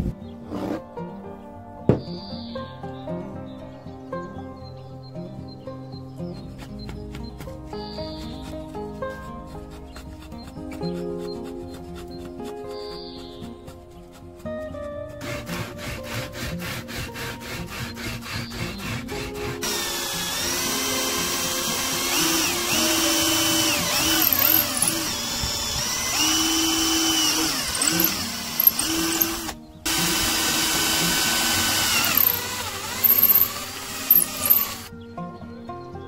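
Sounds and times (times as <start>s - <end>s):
sandpaper rubbing on wood: 9.2s - 23.2s
drill press boring into wood: 15.2s - 34.9s.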